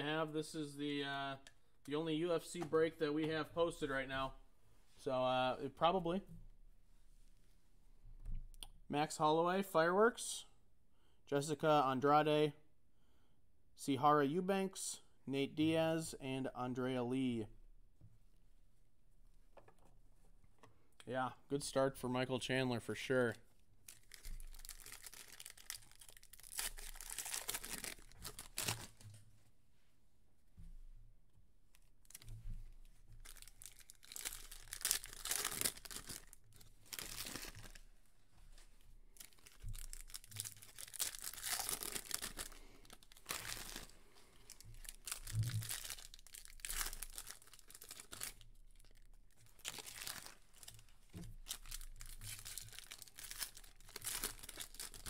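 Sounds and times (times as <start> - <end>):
foil packs tearing and crinkling: 23.9 - 29.0, 33.2 - 37.8, 39.2 - 43.9, 44.5 - 50.8, 51.4 - 55.0.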